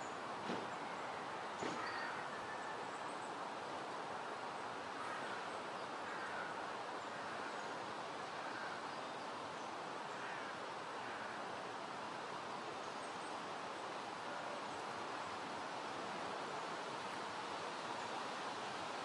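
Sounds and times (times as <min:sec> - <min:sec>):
wind hissing through foliage: 0:00.0 - 0:19.0.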